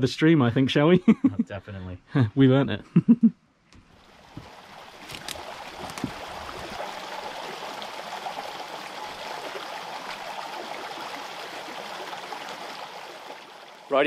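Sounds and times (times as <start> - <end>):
stream running and trickling: 3.8 - 14.0.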